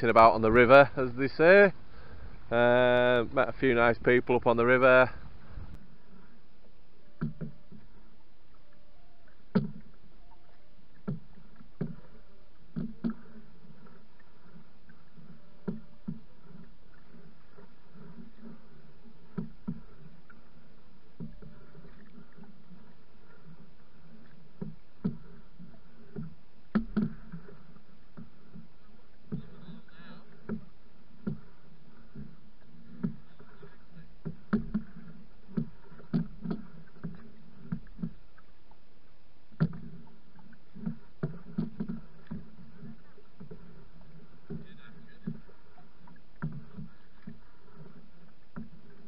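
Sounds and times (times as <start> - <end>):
water washing against hull: 0.0 - 49.0
knocks and slaps on canoe: 7.2 - 8.0, 9.4 - 10.0, 10.9 - 38.8, 39.5 - 49.0.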